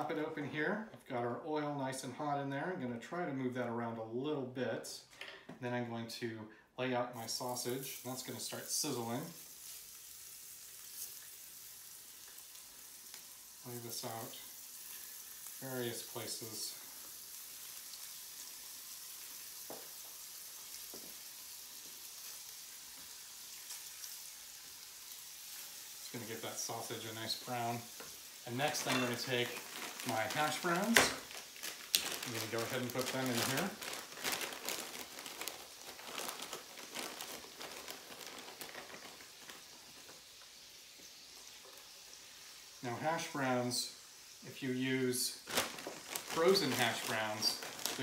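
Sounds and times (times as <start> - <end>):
sausage sizzling in oil: 7.2 - 48.0
plastic bag crinkling: 24.7 - 40.8, 44.7 - 48.0.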